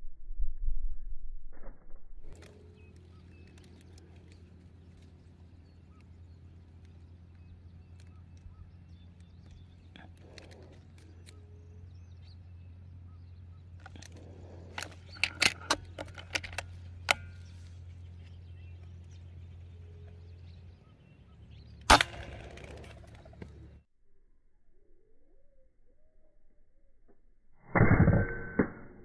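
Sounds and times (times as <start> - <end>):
steady low hum: 0.0 - 29.0
air rifle shot: 21.8 - 22.9.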